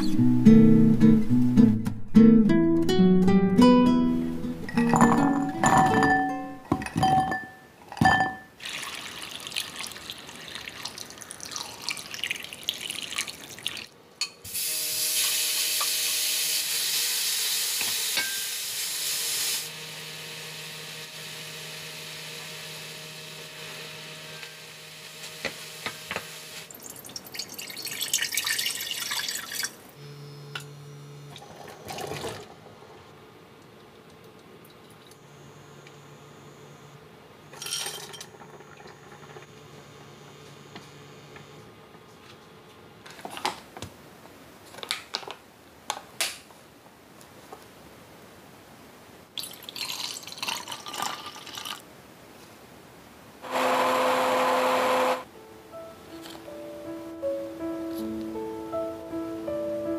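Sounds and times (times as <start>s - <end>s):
water splashing and rinsing: 8.6s - 13.9s, 26.6s - 29.9s.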